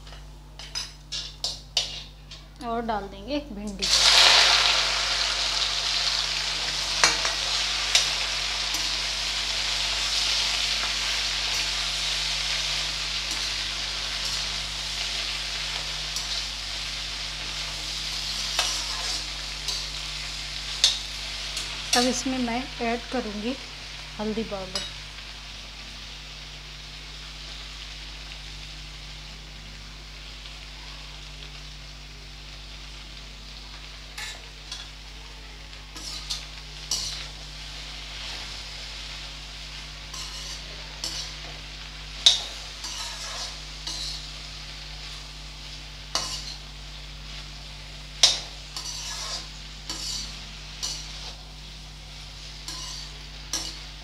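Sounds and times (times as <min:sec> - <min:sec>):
okra sizzling in oil: 0:00.0 - 0:02.4, 0:03.7 - 0:54.0
metal spoon scraping a pan: 0:00.6 - 0:02.4, 0:18.3 - 0:20.0, 0:34.2 - 0:34.9, 0:36.0 - 0:37.4, 0:40.1 - 0:41.5, 0:42.2 - 0:44.3, 0:46.1 - 0:46.6, 0:48.2 - 0:51.4, 0:52.6 - 0:53.9.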